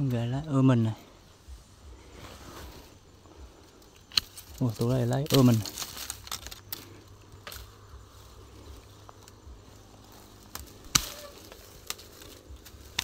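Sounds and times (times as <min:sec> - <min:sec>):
twigs and leaves rustling: 0:00.0 - 0:13.0
pruning shears snapping branch: 0:03.8 - 0:07.8, 0:10.0 - 0:13.0.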